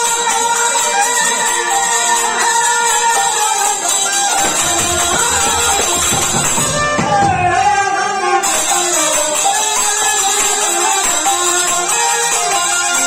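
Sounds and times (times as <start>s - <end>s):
harmonium: 0.0s - 13.0s
shehnai melody: 0.0s - 13.0s.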